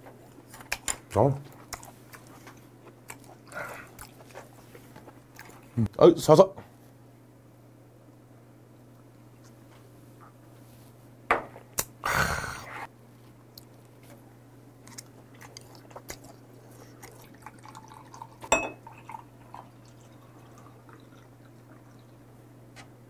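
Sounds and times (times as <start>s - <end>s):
chewing: 0.1s - 5.8s, 14.8s - 18.4s
loud breathy burst: 12.0s - 12.9s
sharp ringing clink: 18.5s - 18.8s.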